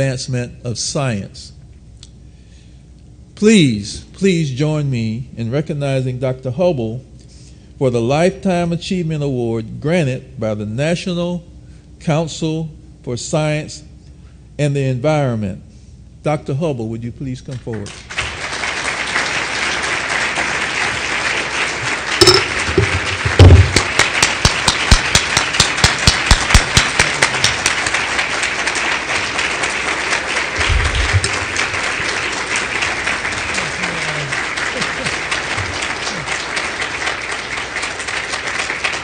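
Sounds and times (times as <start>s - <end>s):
close hand claps: 17.5s - 39.0s
crowd applauding: 17.7s - 39.0s.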